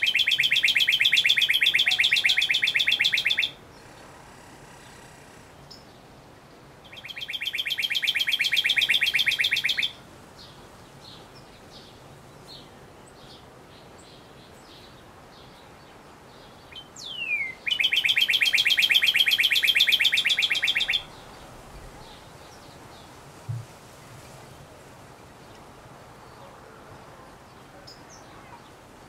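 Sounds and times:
bird singing trills: 0:00.0 - 0:04.0, 0:06.8 - 0:10.0, 0:16.7 - 0:21.4.

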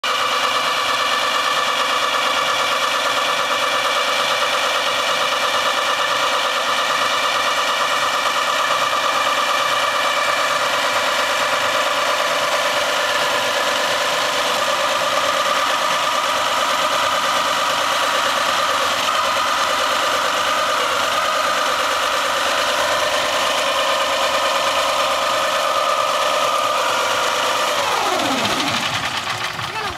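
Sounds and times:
golf cart tyres spinning: 0:00.6 - 0:29.9.

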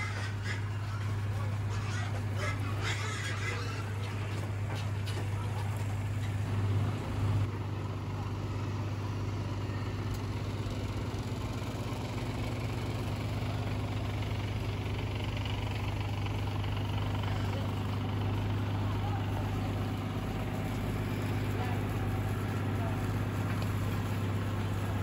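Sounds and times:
truck diesel engine idling: 0:00.0 - 0:25.0.

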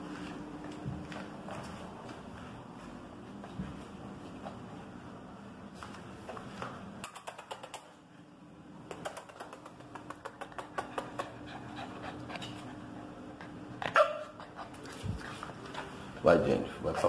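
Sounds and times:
claws clicking on tile floor: 0:07.0 - 0:08.0, 0:08.9 - 0:11.4
puppies panting: 0:10.0 - 0:13.8.

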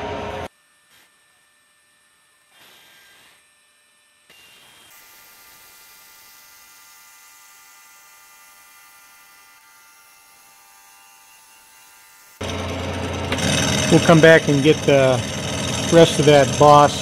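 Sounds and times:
milling machine motor whine: 0:00.0 - 0:05.1, 0:11.4 - 0:17.0.

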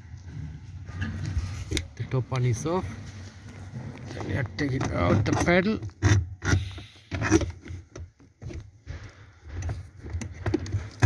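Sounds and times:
rubbing and scraping: 0:00.0 - 0:11.0
knocks and clicks of parts: 0:09.4 - 0:11.0.

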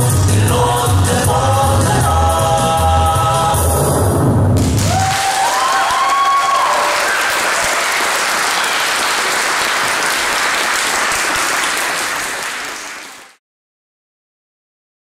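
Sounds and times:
audience applauding: 0:04.6 - 0:13.4.

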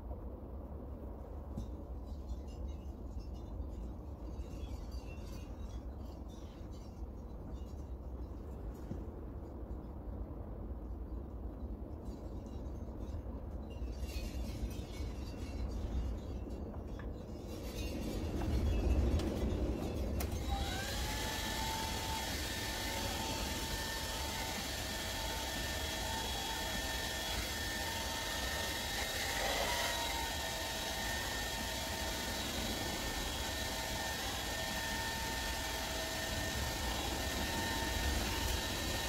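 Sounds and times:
hair dryer running: 0:20.2 - 0:39.0.

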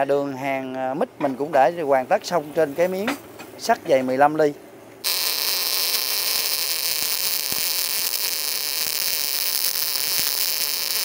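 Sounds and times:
welding arc hissing: 0:05.0 - 0:11.0.

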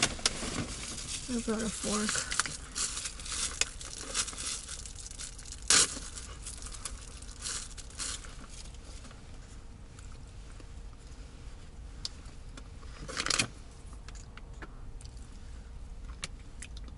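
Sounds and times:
paper wrapper crinkling and tearing: 0:00.0 - 0:08.8.

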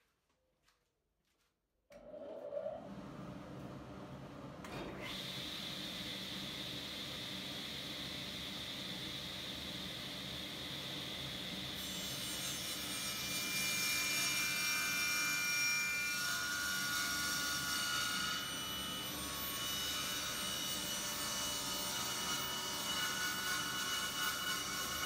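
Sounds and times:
table saw cutting wood: 0:04.8 - 0:07.0, 0:11.8 - 0:25.0.

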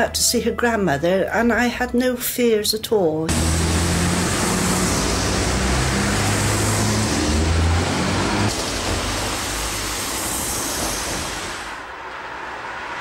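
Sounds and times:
slow car engine humming: 0:03.3 - 0:09.2
hiss of passing traffic: 0:03.3 - 0:13.0.

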